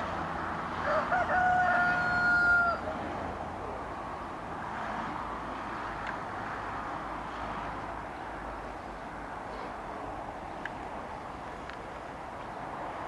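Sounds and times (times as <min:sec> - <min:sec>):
steady background noise: 0:00.0 - 0:13.0
rooster crowing: 0:00.8 - 0:03.0.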